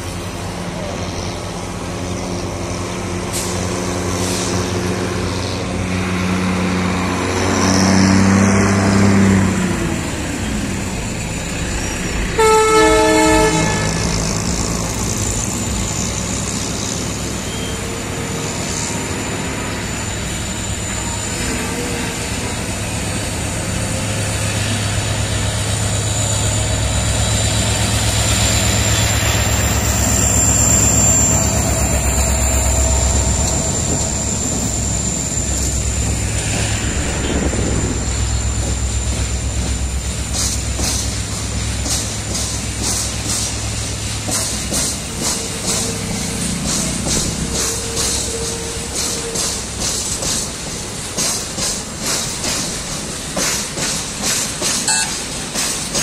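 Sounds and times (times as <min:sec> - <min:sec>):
diesel locomotive engines droning: 0:00.0 - 0:56.0
locomotive horn: 0:12.3 - 0:14.6, 0:54.9 - 0:55.2.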